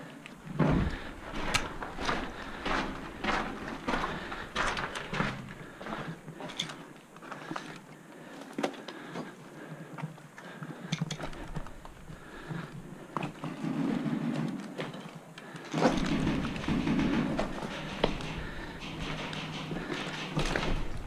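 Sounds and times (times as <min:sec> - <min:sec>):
footsteps crunching over rubble: 0:00.0 - 0:21.0
gear clicking and rustling: 0:00.7 - 0:09.3, 0:10.0 - 0:21.0.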